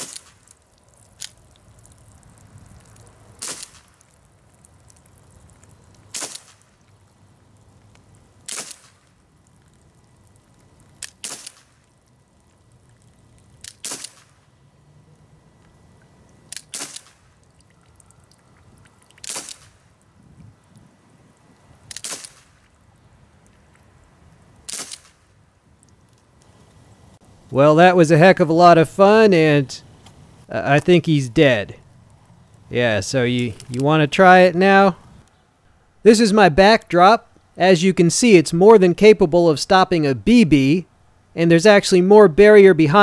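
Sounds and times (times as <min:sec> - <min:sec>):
bb pistol shots popping: 0:03.4 - 0:03.9, 0:06.1 - 0:06.6, 0:08.5 - 0:09.0, 0:11.0 - 0:11.8, 0:13.6 - 0:14.4, 0:16.5 - 0:17.2, 0:19.2 - 0:19.8, 0:21.9 - 0:22.5, 0:24.7 - 0:25.2.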